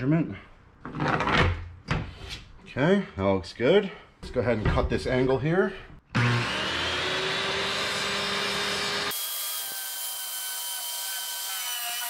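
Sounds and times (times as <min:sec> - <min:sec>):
circular saw cutting wood: 0:06.2 - 0:12.0.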